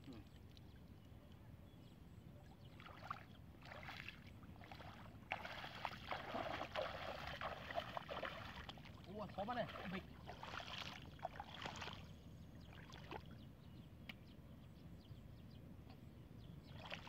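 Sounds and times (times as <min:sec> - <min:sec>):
bare feet splashing in water: 0:02.8 - 0:12.1.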